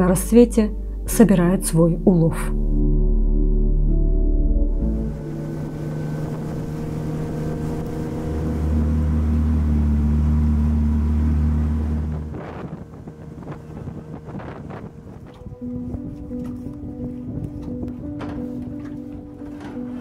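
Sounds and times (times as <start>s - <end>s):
boat motor humming: 0.0s - 20.0s
water splashing: 4.8s - 15.6s
wind: 4.8s - 20.0s.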